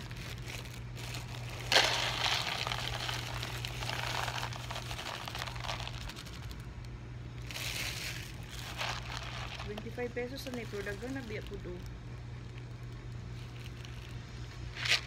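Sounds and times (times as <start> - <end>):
low steady hum: 0.0 - 15.0
plastic bag crinkling: 0.0 - 15.0
kibble poured into plastic bowl: 1.7 - 6.0.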